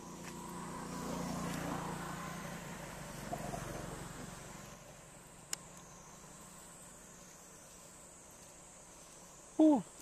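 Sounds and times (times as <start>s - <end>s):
vehicle engine passing by: 0.0s - 7.1s.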